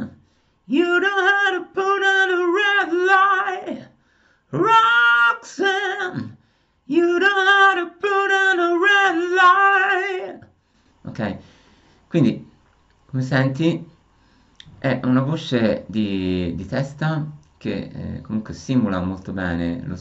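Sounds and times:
man singing with vibrato: 0.0 - 11.4.

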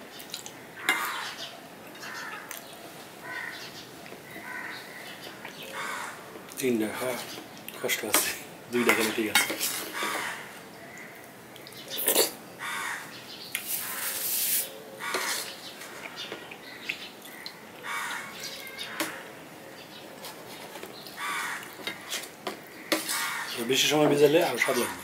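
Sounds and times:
spoon scraping steel bowl: 8.2 - 10.3, 13.6 - 15.6, 21.8 - 22.3, 22.9 - 23.4.

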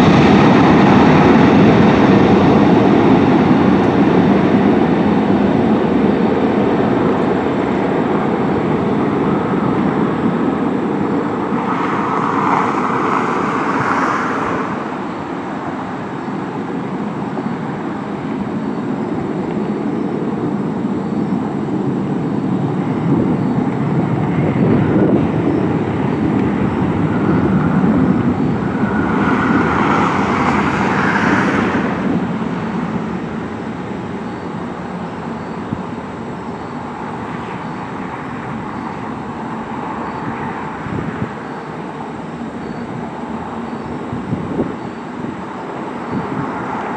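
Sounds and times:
jet aircraft roar on takeoff: 0.0 - 46.9.

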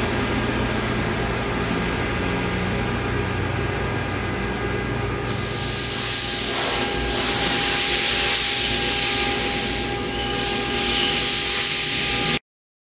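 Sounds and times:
low machine hum: 0.0 - 12.4
loud steady hiss: 5.3 - 12.4.

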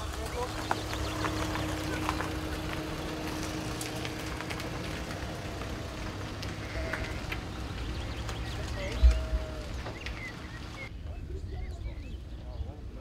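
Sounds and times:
hooves ticking on turf: 0.0 - 10.9.

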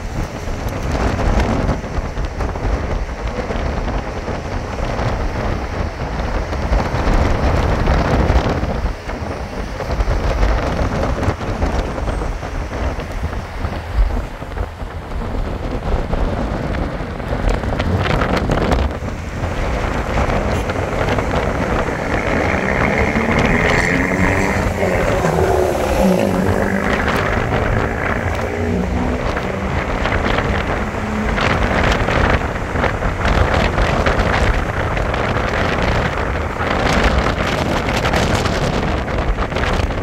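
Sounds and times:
car road noise: 0.0 - 40.0
wind rushing over microphone: 0.0 - 40.0
higher steady drone: 19.2 - 34.3.

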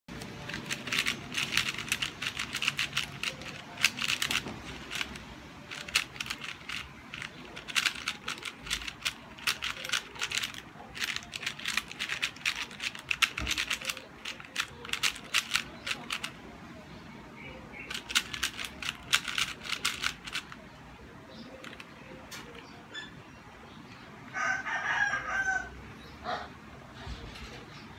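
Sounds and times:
puzzle cube clicking: 0.1 - 16.4, 17.9 - 20.6.

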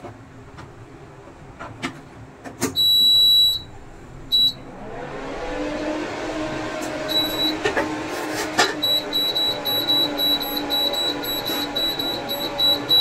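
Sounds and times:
cooker buzzer beeping: 2.8 - 4.6, 7.1 - 7.7, 8.8 - 13.0
cooker hum: 2.8 - 13.0.

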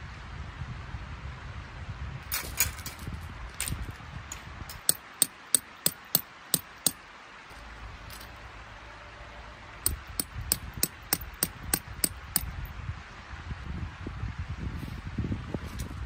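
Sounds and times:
hammer striking metal tent peg: 4.7 - 7.0, 9.9 - 12.7.

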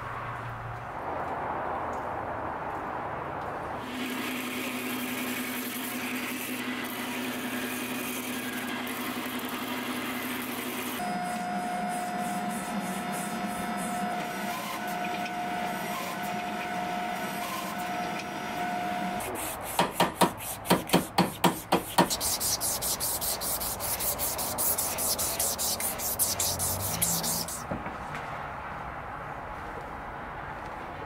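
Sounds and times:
mechanical hum: 3.8 - 28.0
hiss: 19.3 - 27.6.

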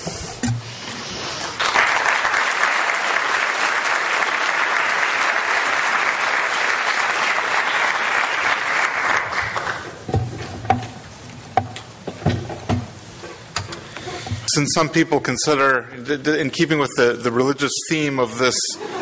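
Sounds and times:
audience applauding: 1.5 - 10.0.

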